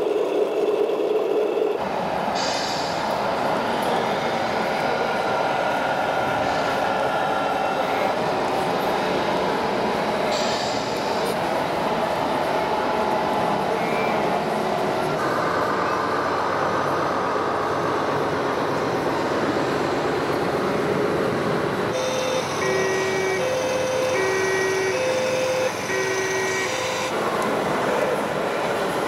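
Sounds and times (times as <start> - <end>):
hubbub of crowded hall: 1.6 - 29.0
toy two-tone siren: 22.0 - 27.1.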